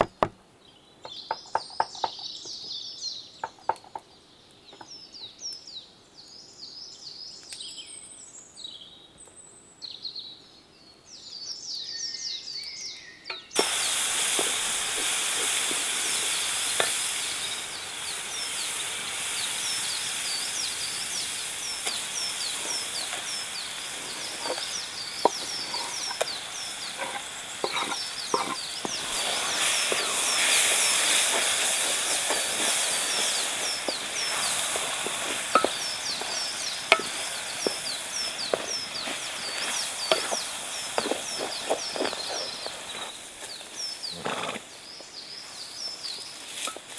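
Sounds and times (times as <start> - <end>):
birds chirping: 0.0 - 46.9
vegetables sizzling in a pan: 13.5 - 46.9.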